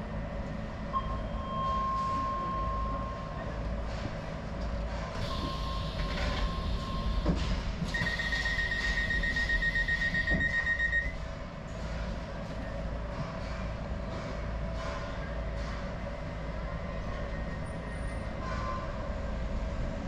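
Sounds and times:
train humming at station: 0:00.0 - 0:20.0
rapid high door warning beeps: 0:05.2 - 0:11.2.

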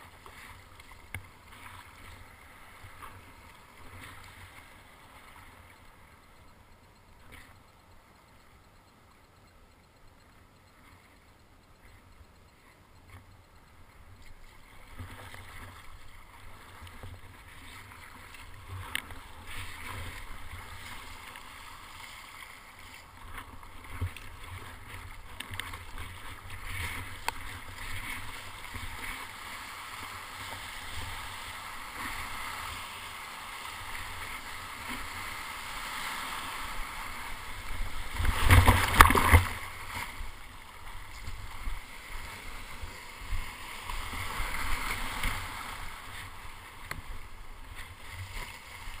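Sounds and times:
water sloshing against kayak: 0:09.7 - 0:49.0
paddle splashes: 0:14.4 - 0:49.0.

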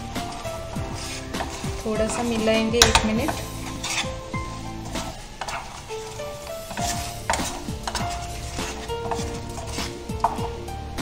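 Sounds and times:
background music: 0:00.0 - 0:11.0
spatula scraping frying pan: 0:00.0 - 0:11.0
syrup sizzling: 0:00.0 - 0:11.0.

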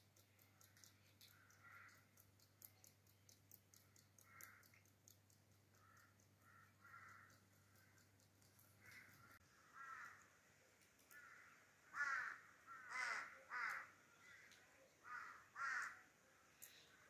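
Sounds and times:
crows cawing: 0:01.3 - 0:02.1, 0:04.2 - 0:04.8, 0:05.8 - 0:08.0, 0:08.8 - 0:10.3, 0:11.1 - 0:16.1.

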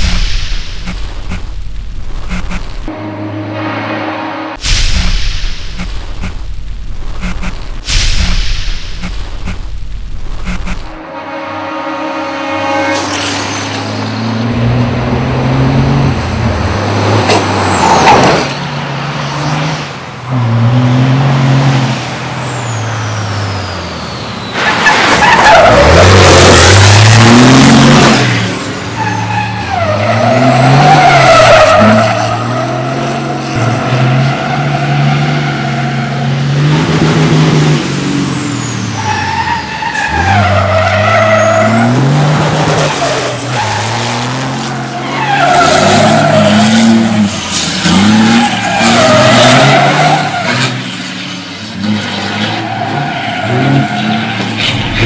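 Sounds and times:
truck engine revving: 0:12.3 - 0:55.0.

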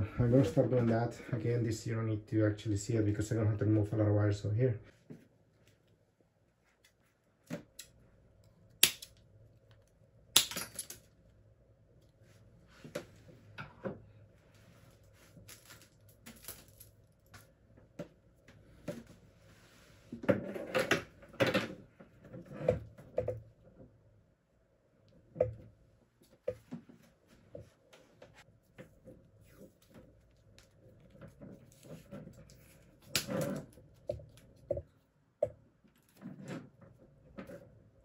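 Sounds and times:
wires clicking and rattling: 0:15.3 - 0:17.6, 0:28.6 - 0:35.0.

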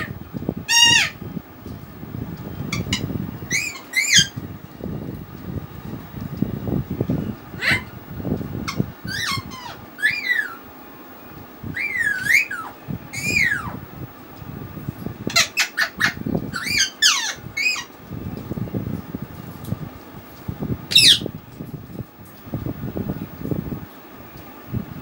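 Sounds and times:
bird whistled calls: 0:02.7 - 0:04.4, 0:08.7 - 0:10.7, 0:11.7 - 0:13.8, 0:15.3 - 0:17.9, 0:20.9 - 0:21.3.

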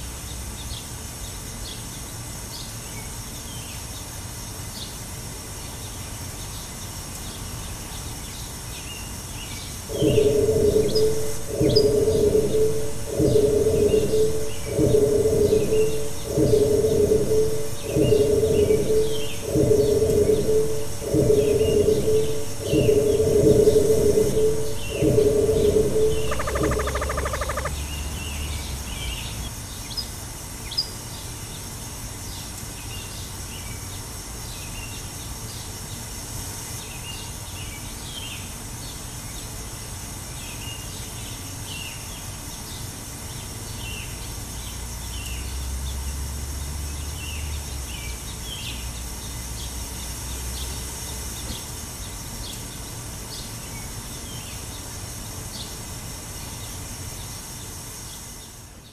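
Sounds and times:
low rumble: 0:09.9 - 0:28.3
small birds chirping: 0:10.0 - 0:29.2.

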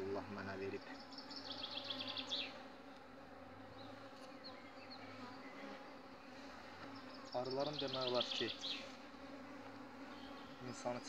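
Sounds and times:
honeybees buzzing: 0:00.0 - 0:11.0.

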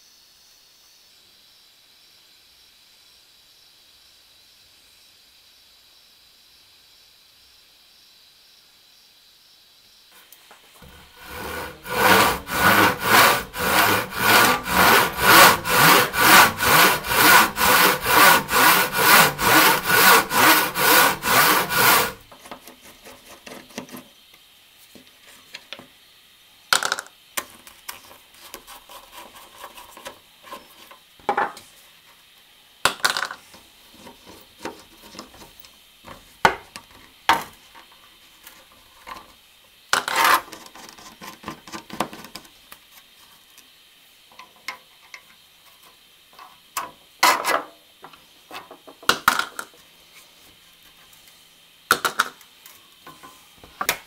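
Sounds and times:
faint scraping: 0:10.8 - 0:22.2
hand saw cutting timber: 0:10.8 - 0:23.8.

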